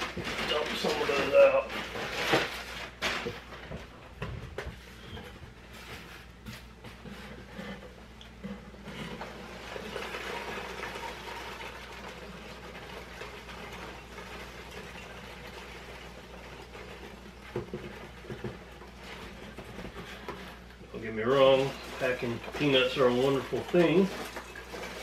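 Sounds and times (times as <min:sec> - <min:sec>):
packing peanuts pouring: 0:00.0 - 0:03.3, 0:09.2 - 0:19.1, 0:21.0 - 0:25.0.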